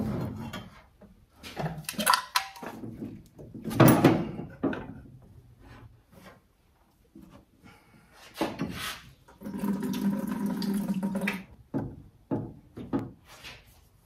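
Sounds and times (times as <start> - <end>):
hand tools clunking and rattling: 0.0 - 6.4.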